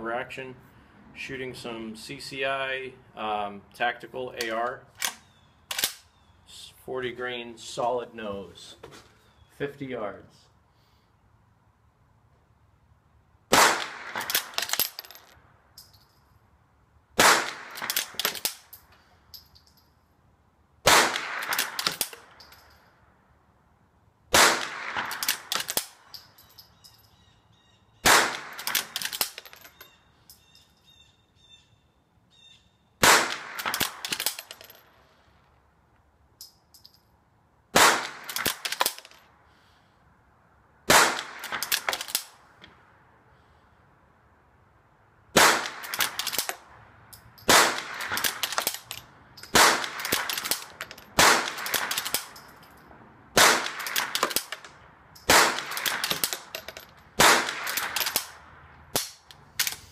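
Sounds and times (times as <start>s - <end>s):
rifle shots: 13.5s - 15.2s, 17.2s - 18.6s, 20.8s - 22.3s, 24.3s - 26.0s, 28.0s - 29.5s, 33.0s - 34.6s, 37.8s - 39.1s, 40.9s - 42.3s, 45.4s - 46.6s, 47.5s - 48.9s, 49.5s - 52.3s, 53.4s - 54.6s, 55.2s - 56.6s, 57.2s - 59.9s.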